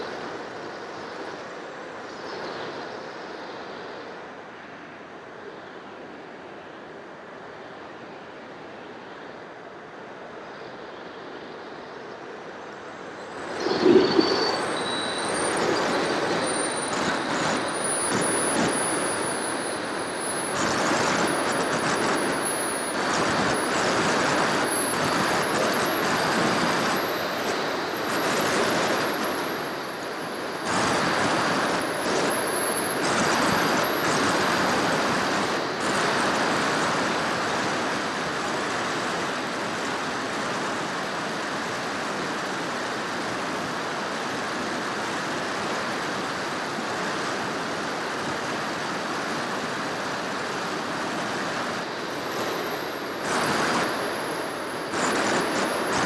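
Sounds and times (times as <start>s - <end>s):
wind rushing over camera: 0.0s - 56.0s
thin high whine rising in pitch: 11.6s - 38.4s, 50.5s - 56.0s.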